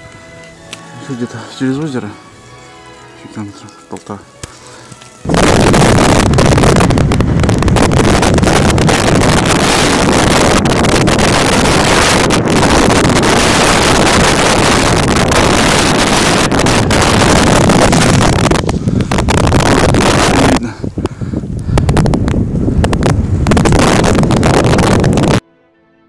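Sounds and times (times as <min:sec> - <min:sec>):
blizzard wind on microphone: 0:05.2 - 0:25.4.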